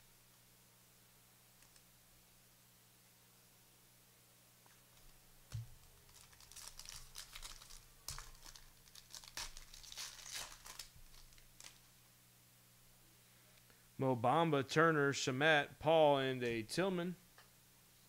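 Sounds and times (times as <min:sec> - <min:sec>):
plastic wrappers crinkling and tearing: 0:05.7 - 0:11.9.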